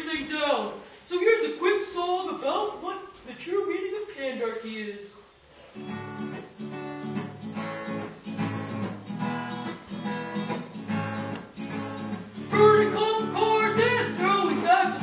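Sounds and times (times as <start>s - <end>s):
acoustic guitar strumming: 5.8s - 15.0s.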